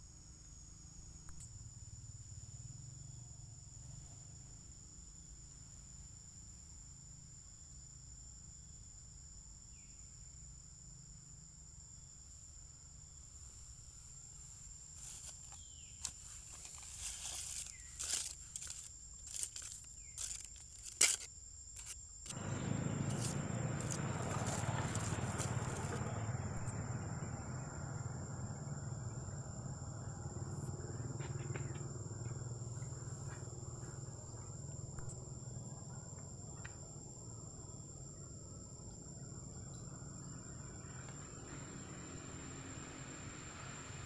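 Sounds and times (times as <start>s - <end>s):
high-pitched insect drone: 0.0s - 44.0s
monkeys rustling in dry leaves: 15.0s - 26.0s.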